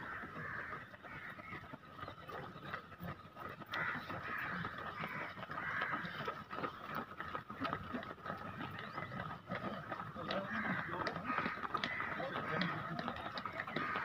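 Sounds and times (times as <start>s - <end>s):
footsteps of runners on asphalt: 0.0s - 14.0s
distant voices and shouts: 7.8s - 14.0s.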